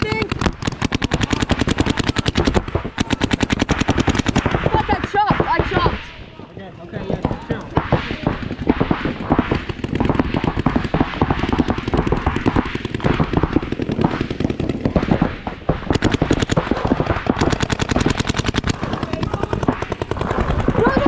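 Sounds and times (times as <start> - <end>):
paintball markers firing: 0.0 - 6.1, 7.0 - 21.0.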